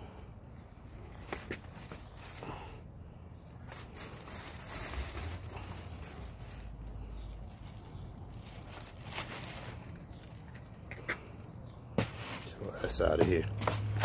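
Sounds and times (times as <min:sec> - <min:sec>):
plastic bag rustling: 0:00.8 - 0:02.6, 0:03.4 - 0:14.0.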